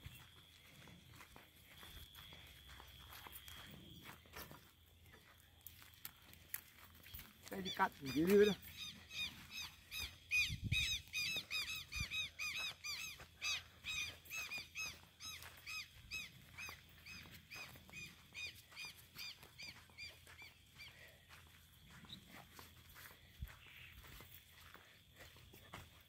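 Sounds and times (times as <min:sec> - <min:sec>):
animal squeaky chirps: 0:07.6 - 0:20.5.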